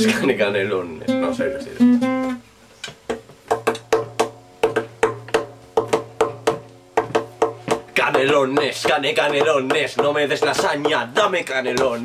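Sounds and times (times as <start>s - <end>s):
classical guitar strummed: 0.9s - 2.4s.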